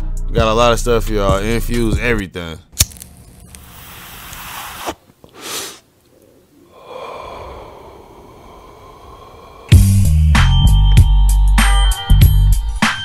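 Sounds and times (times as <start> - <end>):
breathy hiss: 3.9 - 10.8
breath puff: 4.2 - 5.9.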